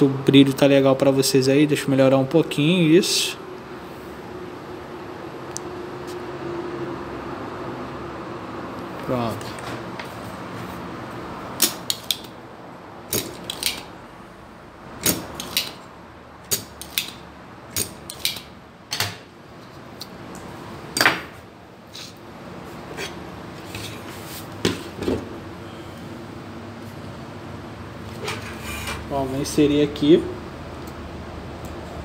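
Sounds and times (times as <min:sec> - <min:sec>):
tools clicking on workbench: 0:13.1 - 0:13.9, 0:15.0 - 0:15.8, 0:17.8 - 0:19.2.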